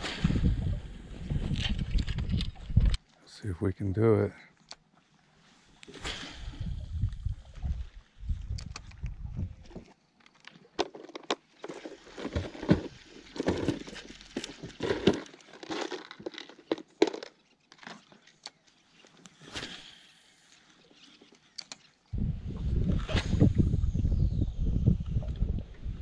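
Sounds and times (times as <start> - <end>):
plastic packaging clicks and crinkles: 10.2 - 19.2.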